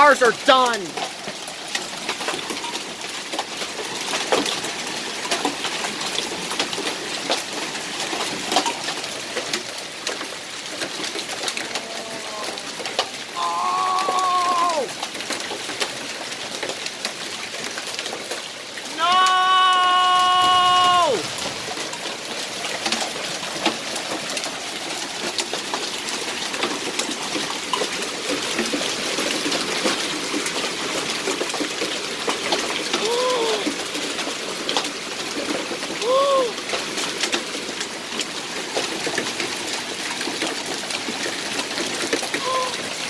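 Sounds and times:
hailstones ticking: 0.0s - 43.0s
rain and hail pelting: 0.0s - 43.0s
rising and falling cry: 13.4s - 14.9s, 18.9s - 21.4s.

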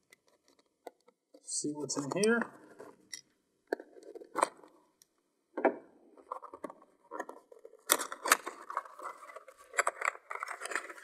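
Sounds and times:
plastic parts clicking and knocking: 0.0s - 11.0s
rustling and scraping in foam case: 6.2s - 11.0s.

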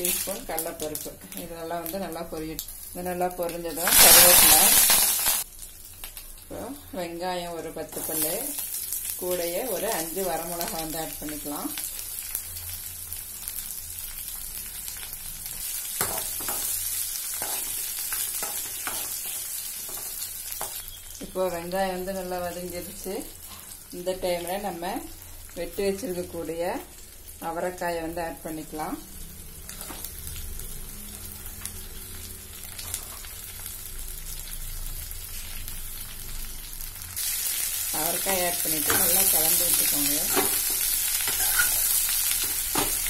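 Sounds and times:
food sizzling in hot oil: 0.0s - 43.0s
metal spoon scraping a pan: 40.3s - 42.9s.

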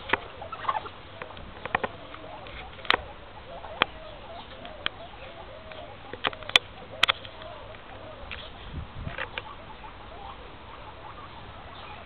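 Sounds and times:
guinea pigs chewing leaves: 0.0s - 12.0s
guinea pigs squeaking: 0.0s - 12.0s.

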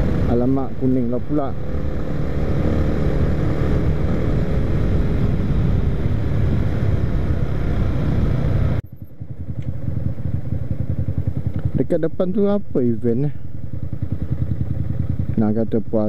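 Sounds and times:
wind rushing on microphone: 0.0s - 8.8s
motorcycle engine: 0.0s - 16.0s
motorcycle engine idling: 8.8s - 16.0s.

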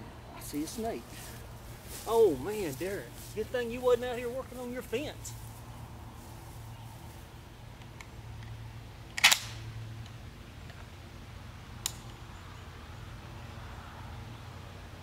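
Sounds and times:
steady low hum: 0.0s - 15.0s
shotgun metallic clack: 9.2s - 9.6s
shotgun sharp click: 9.2s - 9.6s.

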